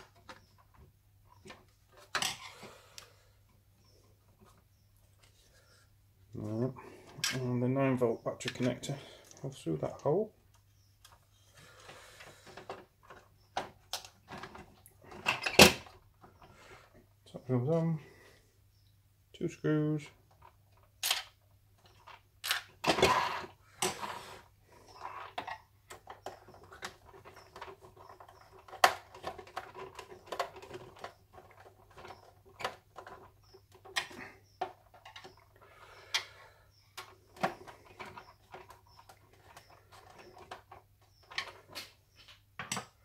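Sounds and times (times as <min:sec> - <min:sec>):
plastic parts being handled: 0:00.0 - 0:05.5, 0:08.4 - 0:17.0, 0:20.2 - 0:43.0.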